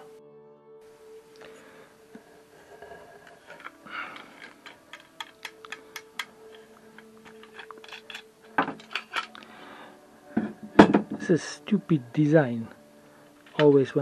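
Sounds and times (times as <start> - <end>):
small metal ticks and clicks: 3.4 - 9.4.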